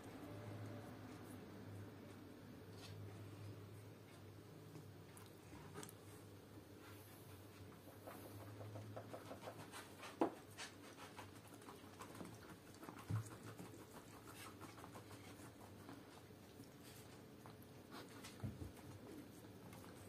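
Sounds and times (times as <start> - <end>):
cat chewing and licking: 4.0 - 20.0
small clicks and smacks: 4.1 - 6.1.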